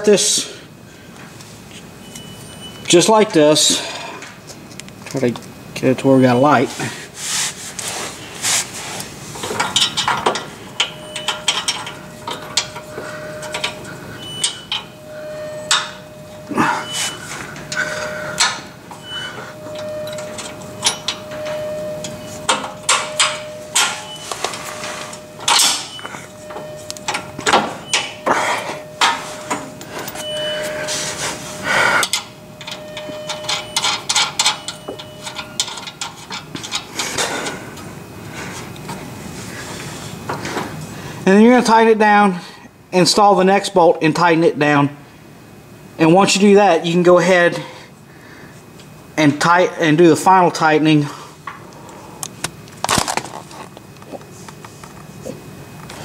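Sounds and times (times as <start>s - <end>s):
faint steady hum: 0.0s - 56.0s
metal clinks and scrapes: 9.4s - 37.5s.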